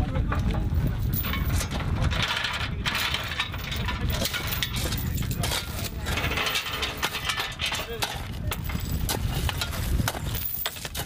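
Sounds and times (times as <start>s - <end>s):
steady low rumble: 0.0s - 11.0s
metallic clinks and knocks: 0.6s - 11.0s.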